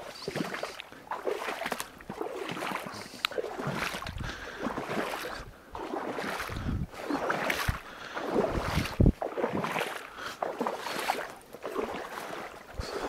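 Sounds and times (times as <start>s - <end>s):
water sloshing and splashing: 0.0s - 13.0s.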